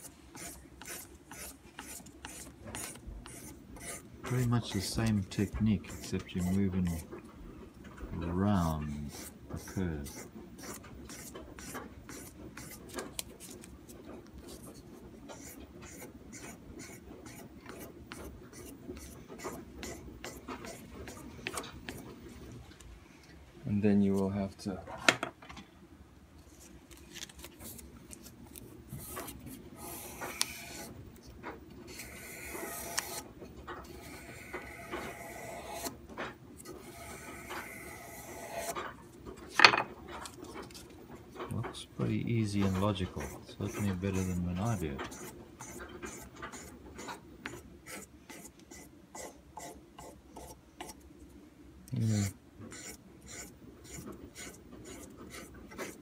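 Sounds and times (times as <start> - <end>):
abrasive paper scratching steel: 0.0 - 7.1, 8.6 - 13.6, 31.9 - 33.2, 36.6 - 38.9, 42.5 - 47.2, 52.0 - 56.0.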